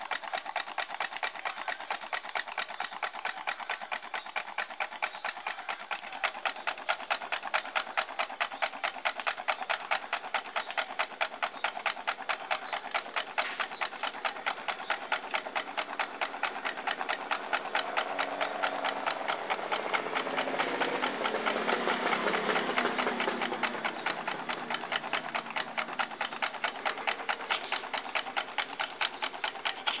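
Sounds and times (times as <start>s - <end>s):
stirling engine ticking: 0.0s - 30.0s.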